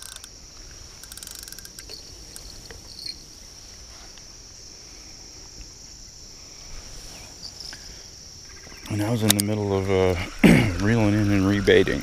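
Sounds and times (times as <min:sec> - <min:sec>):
rapid clicks: 0:00.0 - 0:00.4
insects chirring: 0:00.0 - 0:12.0.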